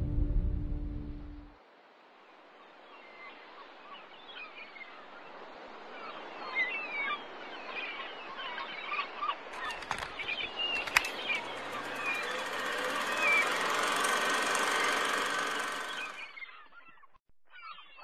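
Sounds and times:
birds chirping: 0:03.0 - 0:18.0
sharp clicks: 0:09.5 - 0:16.3.

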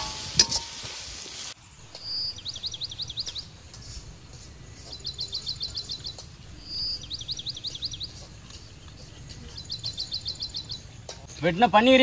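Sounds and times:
bird chirping: 0:01.8 - 0:03.6, 0:04.8 - 0:11.6.

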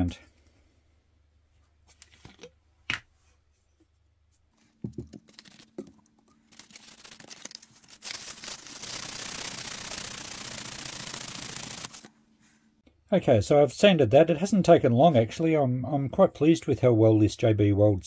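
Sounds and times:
sandpaper scratching: 0:06.5 - 0:12.1.

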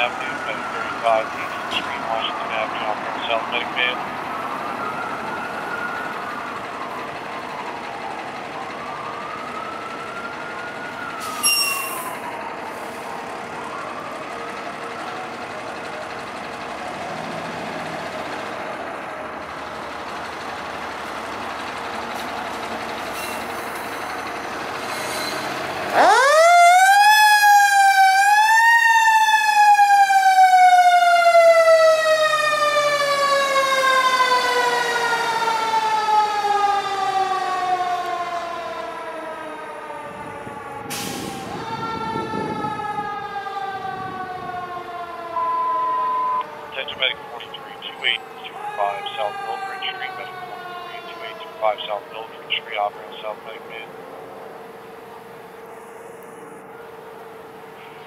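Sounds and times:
high-pitched siren blast: 0:00.0 - 0:14.3, 0:25.2 - 0:53.4
fire engine siren wailing: 0:00.0 - 0:58.0
loud siren winding up: 0:04.2 - 0:14.3, 0:23.0 - 0:51.9.

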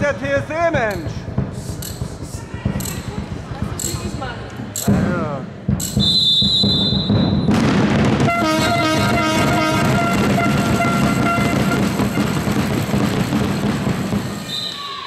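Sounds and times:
crowd hum: 0:01.1 - 0:15.0
referee's whistle blast: 0:05.9 - 0:07.6, 0:14.4 - 0:15.0
horn multi-note tone: 0:08.2 - 0:12.4.

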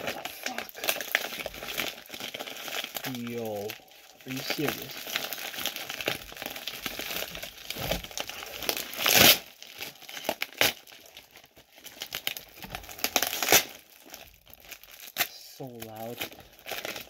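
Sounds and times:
plastic bag and tape crinkling: 0:00.0 - 0:17.0
tape ripping: 0:00.0 - 0:17.0.

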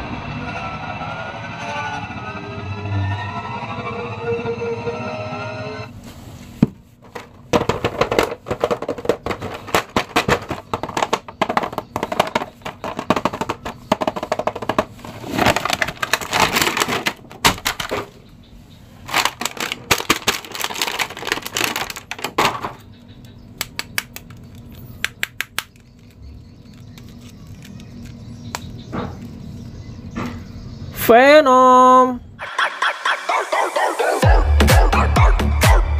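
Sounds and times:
plastic packaging crinkling: 0:07.0 - 0:18.0, 0:19.0 - 0:22.9, 0:25.7 - 0:28.6.

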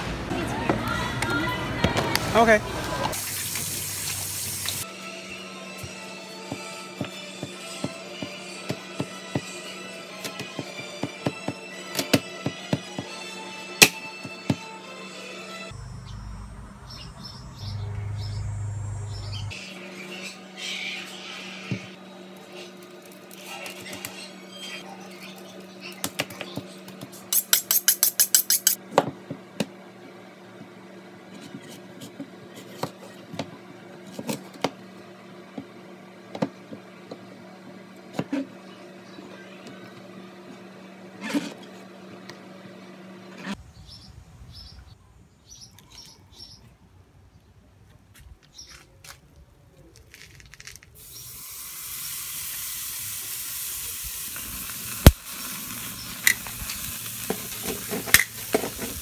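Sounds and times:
steak sizzling on grill: 0:03.1 - 0:04.8, 0:51.0 - 0:59.0.

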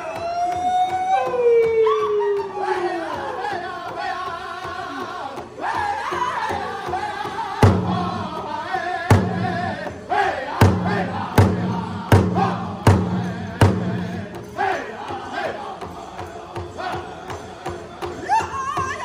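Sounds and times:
high-pitched group chorus singing: 0:00.0 - 0:19.0
big drum strikes: 0:07.6 - 0:10.0, 0:10.6 - 0:14.7.

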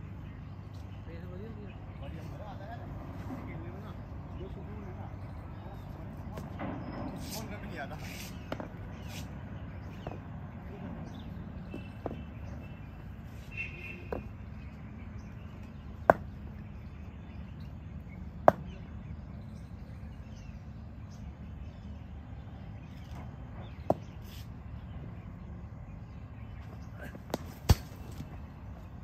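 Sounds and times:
low outdoor background: 0:00.0 - 0:29.0
cricket bat hitting ball: 0:16.0 - 0:16.4, 0:18.4 - 0:18.8, 0:27.2 - 0:28.3.

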